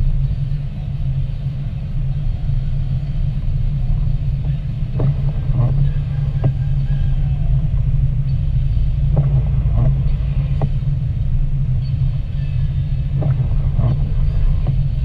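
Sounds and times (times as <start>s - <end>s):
car driving on wet road: 0.0s - 15.0s.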